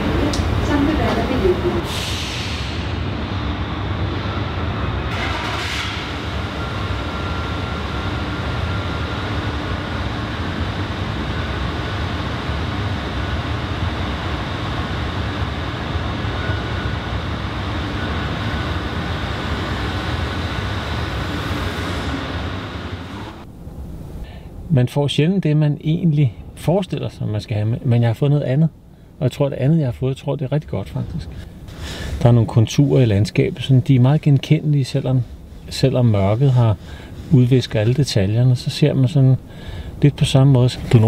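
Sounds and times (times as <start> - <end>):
low machinery rumble: 0.0 - 41.0
short hiss: 1.8 - 3.0
car rolling slowly: 2.9 - 24.2
faint steady hum: 6.1 - 41.0.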